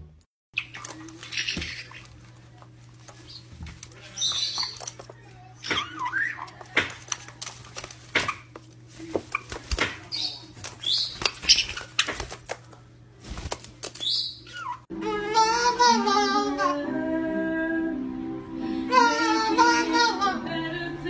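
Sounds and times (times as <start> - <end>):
parrots squawking: 0.6 - 2.3, 3.2 - 7.2, 9.3 - 12.4, 14.0 - 16.9
wings flapping: 0.6 - 14.3
music with singing: 14.9 - 21.0.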